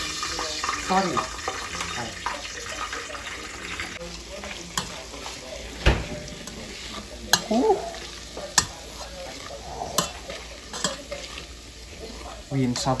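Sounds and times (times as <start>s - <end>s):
hot oil sizzling: 0.0s - 13.0s
metal tongs clacking on pot: 6.4s - 11.4s.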